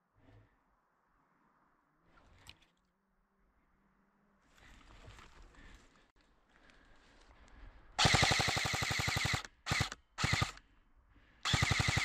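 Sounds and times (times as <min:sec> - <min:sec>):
airsoft gun full-auto bursts: 0:08.0 - 0:10.6, 0:11.4 - 0:12.0.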